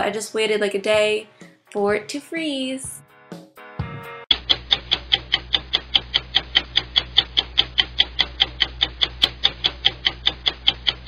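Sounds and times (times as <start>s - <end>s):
fast clock ticking: 4.3s - 11.0s.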